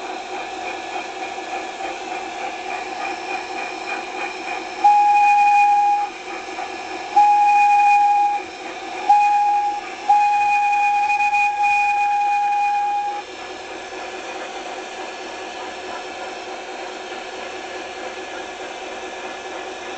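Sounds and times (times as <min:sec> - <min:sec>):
locomotive whistle blast: 0:04.7 - 0:13.4.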